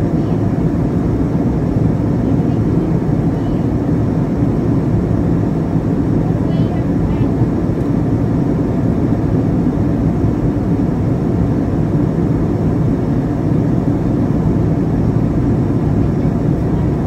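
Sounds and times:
jet engines droning: 0.0 - 17.0.

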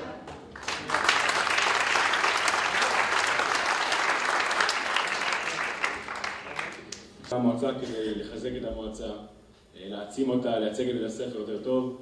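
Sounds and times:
audience applauding: 0.6 - 7.3.

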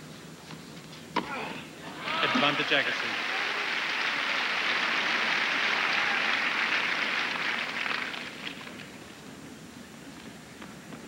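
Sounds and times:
crowd applauding: 1.9 - 9.0.

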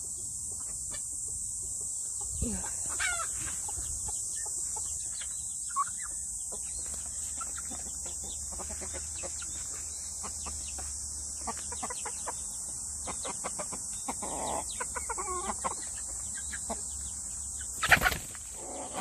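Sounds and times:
chickens clucking: 0.0 - 19.0
chicken squawk: 2.6 - 3.9, 13.1 - 15.9, 17.8 - 19.0.

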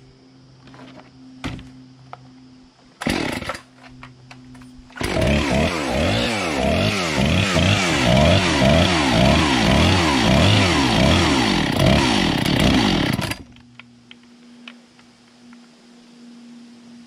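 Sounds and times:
faint steady hum: 0.0 - 5.1, 13.0 - 17.0
chainsaw engine revving: 3.0 - 3.7, 5.0 - 13.5.

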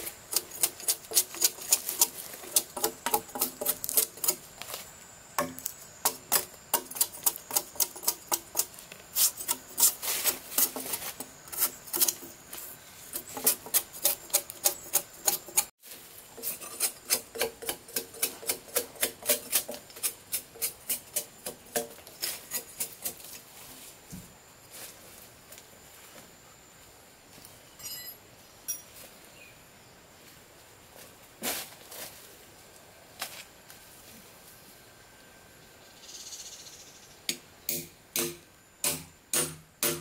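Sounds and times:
hand tool scraping wood: 0.0 - 4.8, 5.4 - 15.7, 16.3 - 23.4.

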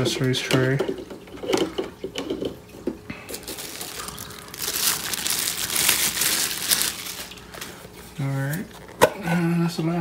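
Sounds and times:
plastic wrap crinkling: 3.3 - 9.0.

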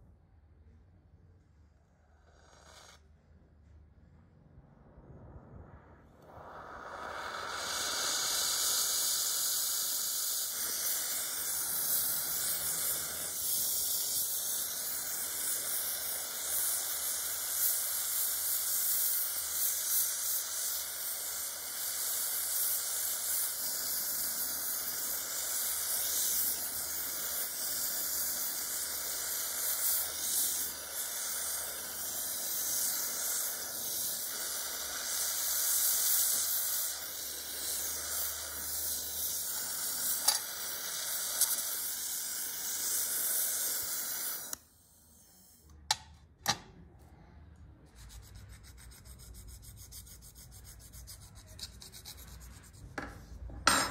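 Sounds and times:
torch flame hissing: 1.8 - 3.1, 5.4 - 46.0.

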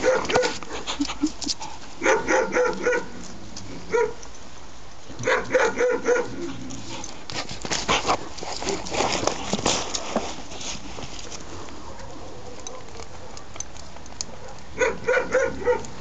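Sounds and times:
puppies barking and yipping: 0.0 - 3.3, 5.2 - 7.1, 11.8 - 16.0.

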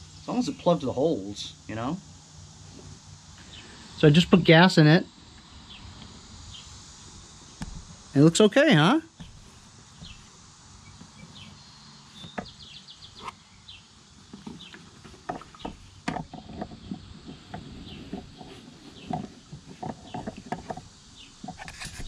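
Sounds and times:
plastic tank handling taps and knocks: 14.3 - 18.4, 19.0 - 21.7.

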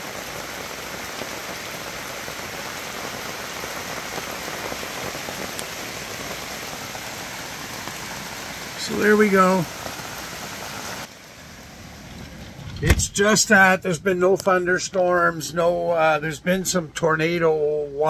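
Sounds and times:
hard rain on fabric awning: 0.0 - 13.5
rain drops ticking: 0.0 - 18.0.

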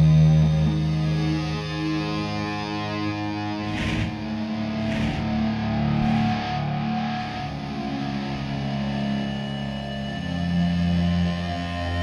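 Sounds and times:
distorted electric guitar: 3.6 - 9.0.

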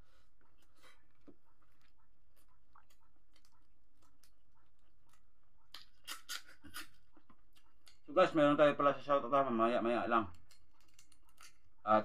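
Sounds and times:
person chewing with mouth clicks: 1.7 - 6.9.

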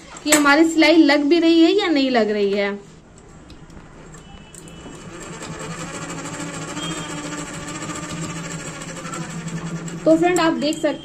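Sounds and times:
sewing machine stitching: 4.6 - 11.0.

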